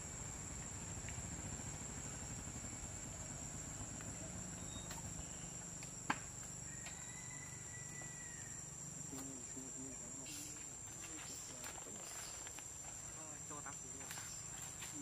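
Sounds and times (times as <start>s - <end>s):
low background rumble: 0.0s - 6.7s
high-pitched insect drone: 0.0s - 15.0s.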